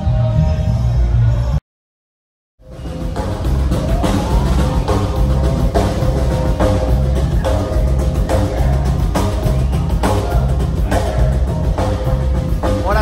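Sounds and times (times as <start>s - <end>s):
heavy bass: 0.0s - 1.6s, 2.6s - 13.0s
drum kit beat: 2.6s - 13.0s
guitar: 2.6s - 13.0s.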